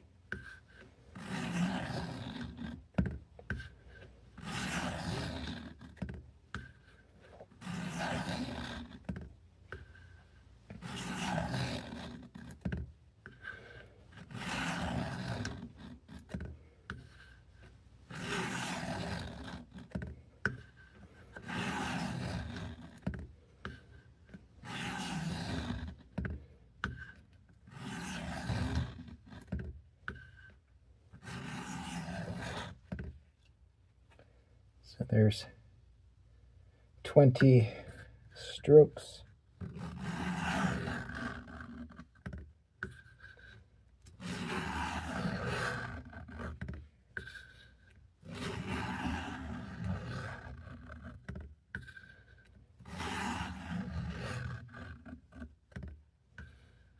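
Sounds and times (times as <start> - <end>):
knife rasping on sharpener: 1.2 - 2.7, 4.4 - 5.7, 7.6 - 8.8, 10.8 - 12.1, 13.3 - 15.6, 18.1 - 19.6, 21.4 - 22.7, 24.6 - 25.9, 31.2 - 32.7, 44.2 - 46.4, 48.3 - 50.7.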